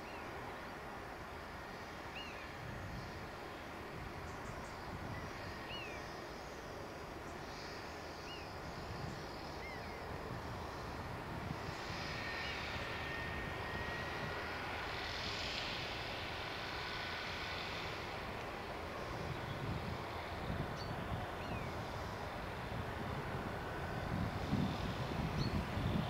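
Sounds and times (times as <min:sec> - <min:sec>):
hedge-cutter flail whine: 0:04.2 - 0:26.0.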